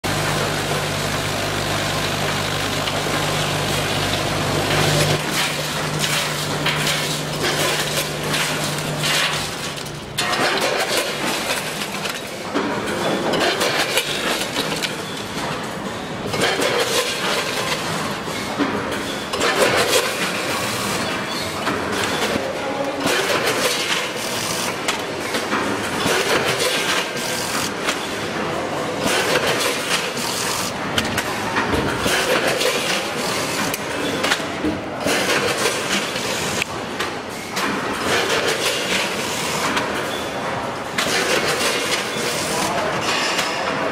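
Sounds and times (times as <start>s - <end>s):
low machine hum: 0.0s - 10.2s
crisps clattering through metal hoppers: 0.1s - 12.4s.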